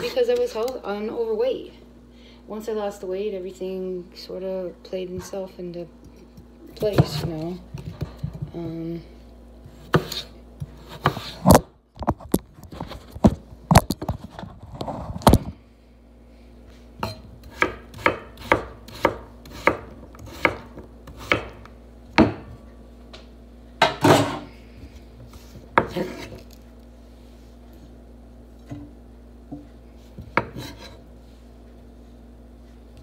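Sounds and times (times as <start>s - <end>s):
knife chopping on wooden board: 9.7s - 11.7s, 17.0s - 22.5s, 25.7s - 26.4s, 30.2s - 31.0s.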